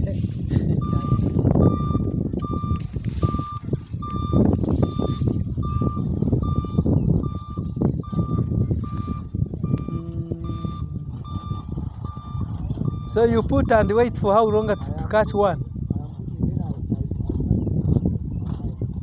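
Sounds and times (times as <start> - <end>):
tall grass rustling: 0.0 - 1.6, 2.7 - 5.6, 7.7 - 10.9
wind rumbling on microphone: 0.0 - 19.0
short high electronic beeps: 0.8 - 15.6
brief lower tone: 0.8 - 15.7.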